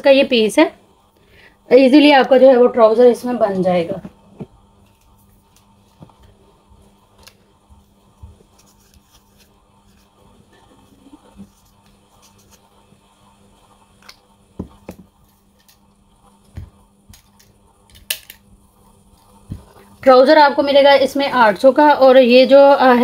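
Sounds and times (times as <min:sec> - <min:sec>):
faint hum: 0:00.0 - 0:23.0.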